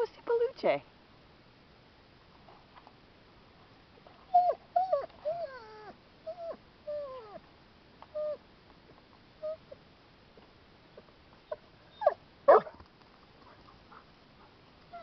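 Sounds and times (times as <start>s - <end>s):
dog whining: 4.3s - 7.4s, 8.1s - 8.4s, 9.4s - 9.8s, 11.4s - 12.7s.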